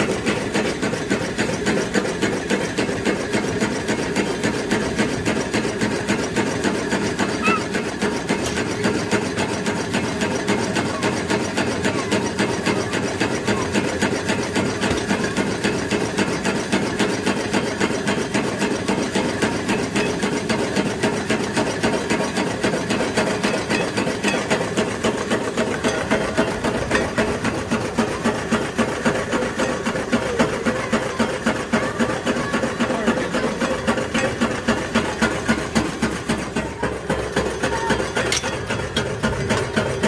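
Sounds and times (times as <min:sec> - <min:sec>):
stirling engine rhythmic clatter: 0:00.0 - 0:40.0.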